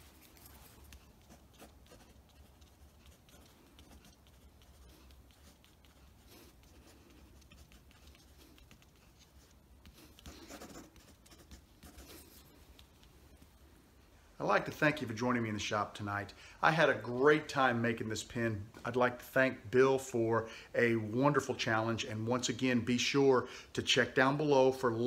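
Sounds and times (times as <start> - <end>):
pencil scratching on paper: 0.0 - 13.7.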